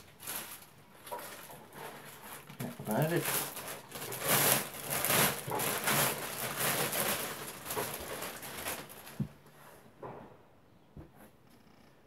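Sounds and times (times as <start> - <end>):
plastic wrapping crinkling: 0.0 - 9.4.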